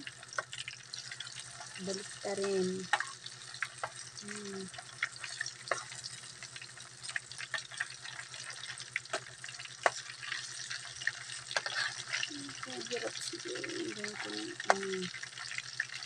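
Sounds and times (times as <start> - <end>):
fish frying in oil: 0.0 - 16.0
spatula scraping pan: 7.5 - 14.8.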